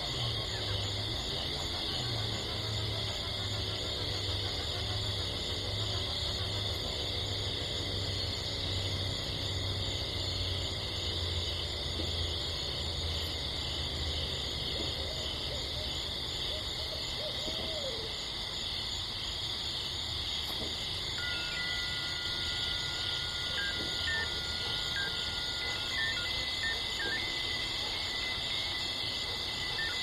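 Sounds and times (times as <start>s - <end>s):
high chirring insect chorus: 0.0s - 30.0s
wavering hoot-like calls: 14.9s - 18.2s, 21.2s - 30.0s
thin steady tones: 21.0s - 30.0s.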